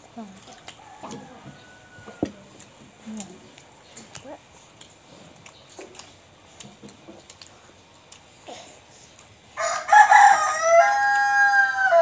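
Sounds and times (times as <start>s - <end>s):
rooster crowing: 0.8s - 2.4s, 9.6s - 12.0s.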